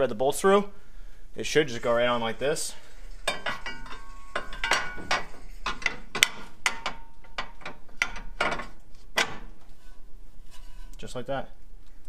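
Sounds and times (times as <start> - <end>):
metal clinks and knocks: 2.8 - 9.6.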